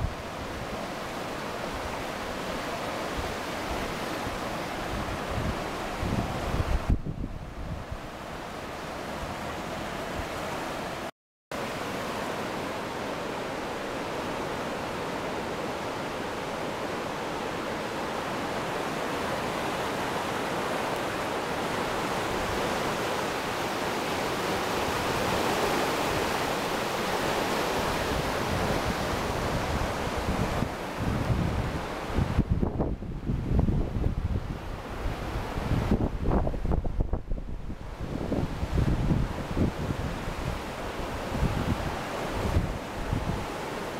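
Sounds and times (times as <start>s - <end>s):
floodwater rushing: 0.0s - 32.5s, 34.3s - 43.9s
wind buffeting microphone: 3.2s - 8.4s, 27.8s - 43.6s.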